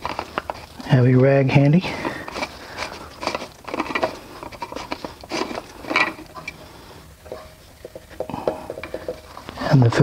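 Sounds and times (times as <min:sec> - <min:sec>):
plastic cover clicks and scrapes: 0:00.0 - 0:00.9, 0:02.1 - 0:06.5.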